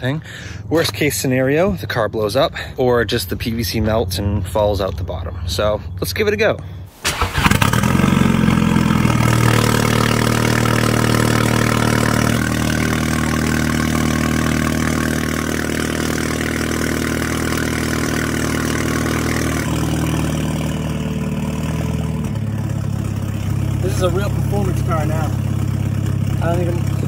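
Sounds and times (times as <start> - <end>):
car engine idling loud: 7.1 - 27.0.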